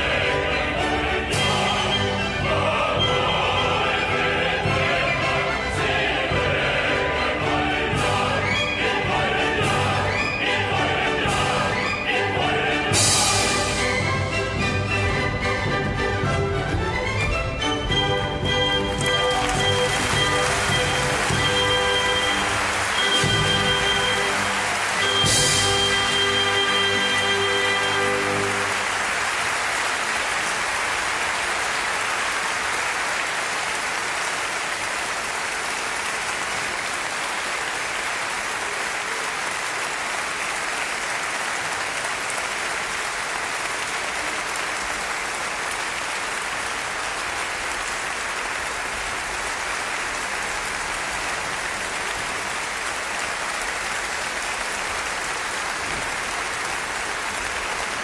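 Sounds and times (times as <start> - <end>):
audience applauding: 16.2 - 58.0.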